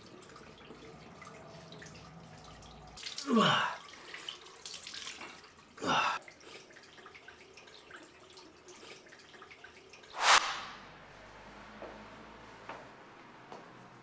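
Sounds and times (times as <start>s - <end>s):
water splashing and dripping: 0.0s - 11.1s.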